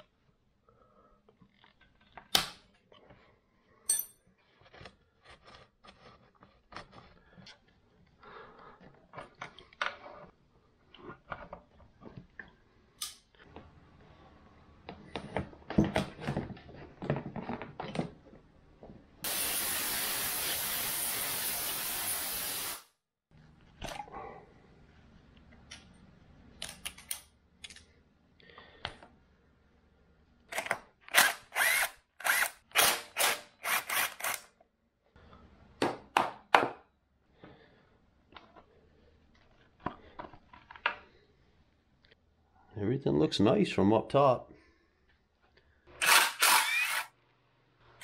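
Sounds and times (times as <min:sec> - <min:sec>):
loud spraying hiss: 0:19.3 - 0:22.9.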